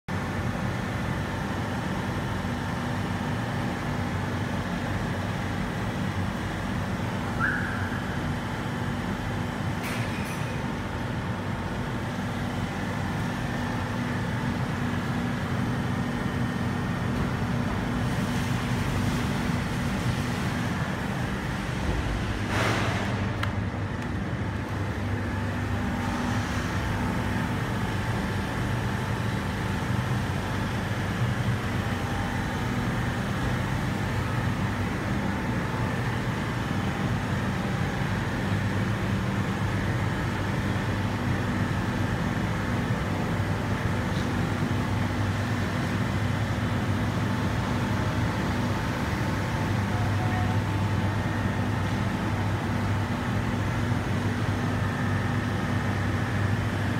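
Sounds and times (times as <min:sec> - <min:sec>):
ventilation fans droning: 0:00.1 - 0:56.9.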